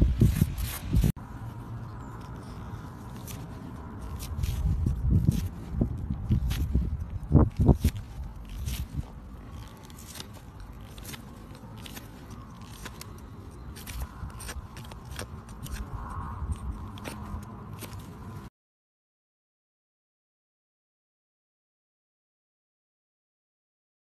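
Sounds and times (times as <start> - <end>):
stiff brush scrubbing hoof: 0.0 - 18.5.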